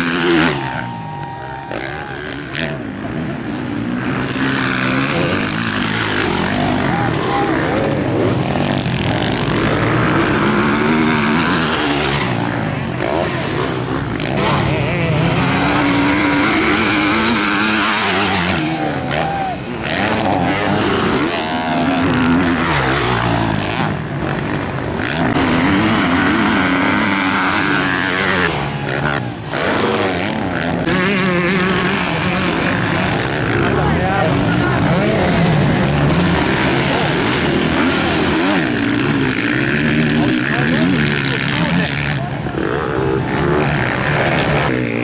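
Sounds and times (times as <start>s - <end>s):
motocross bike engines revving: 0.0s - 45.0s.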